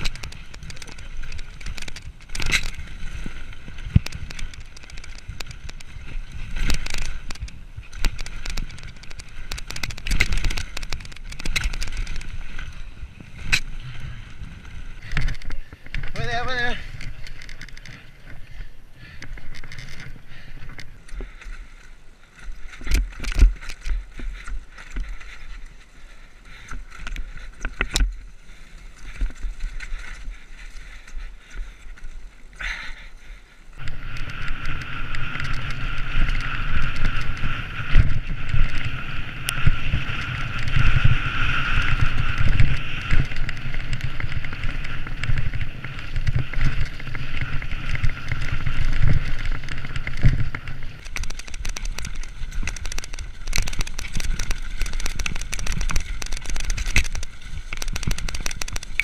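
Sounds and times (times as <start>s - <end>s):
bike knocks and rattles: 0.0s - 21.5s, 22.4s - 25.8s, 33.8s - 59.0s
bike rattling down dirt trail: 0.0s - 59.0s
wind on microphone: 33.8s - 59.0s.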